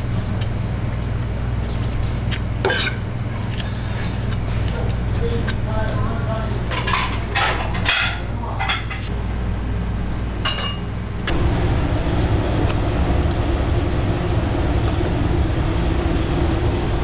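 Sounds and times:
steady low hum: 0:00.0 - 0:17.0
rough low rumble: 0:11.3 - 0:17.0.

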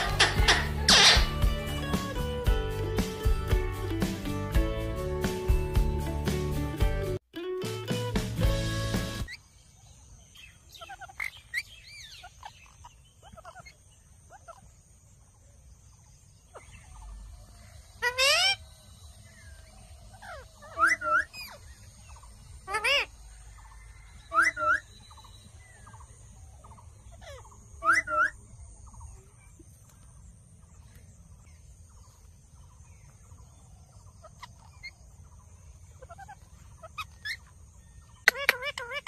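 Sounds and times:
parakeets calling shrilly: 0:00.0 - 0:02.2, 0:10.3 - 0:14.7, 0:16.5 - 0:29.1, 0:34.0 - 0:39.0.

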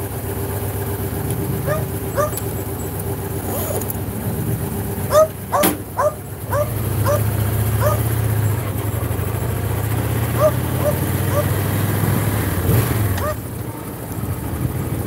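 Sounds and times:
motorcycle engine running: 0:00.0 - 0:15.0
dog yelping: 0:01.6 - 0:02.5, 0:05.1 - 0:08.6, 0:10.3 - 0:11.6, 0:13.2 - 0:13.5.

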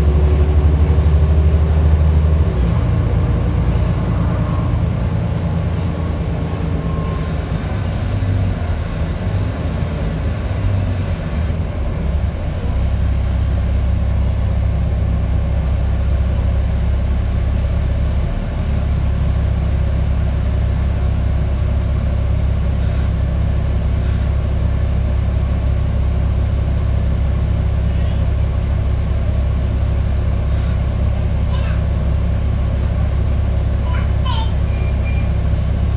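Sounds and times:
bus diesel engine: 0:00.0 - 0:35.9
air brakes hissing: 0:24.0 - 0:24.3, 0:30.4 - 0:30.9.

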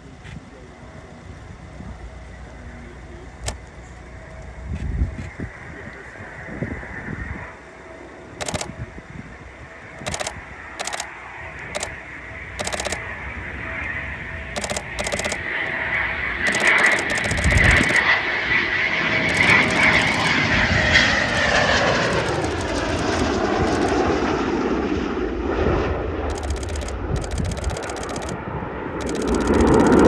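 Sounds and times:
jet flying past roaring: 0:02.6 - 0:30.0
camera shutter clicking: 0:08.4 - 0:08.7, 0:10.0 - 0:11.1, 0:11.7 - 0:11.9, 0:12.6 - 0:13.0, 0:14.6 - 0:15.7, 0:16.4 - 0:18.0, 0:19.2 - 0:20.4, 0:21.2 - 0:24.0, 0:26.3 - 0:28.4, 0:29.0 - 0:30.0.

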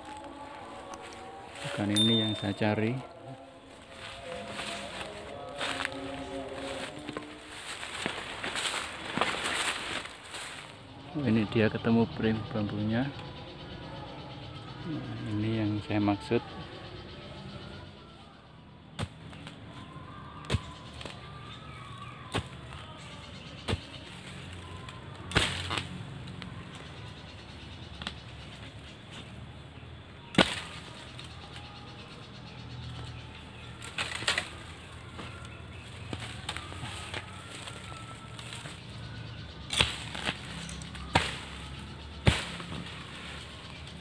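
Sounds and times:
dry leaves rustling: 0:00.0 - 0:11.5, 0:32.6 - 0:44.0
metal bar striking soil and roots: 0:00.8 - 0:02.9, 0:25.3 - 0:26.4, 0:30.3 - 0:31.2, 0:33.8 - 0:38.8, 0:39.4 - 0:44.0.

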